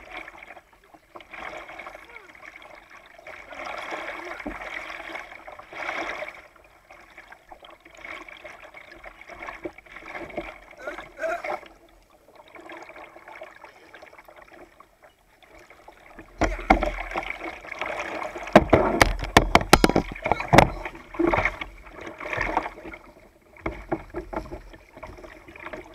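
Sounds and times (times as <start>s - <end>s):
paddle splashing in water: 0.0s - 25.9s
sharp knocks: 18.5s - 21.5s.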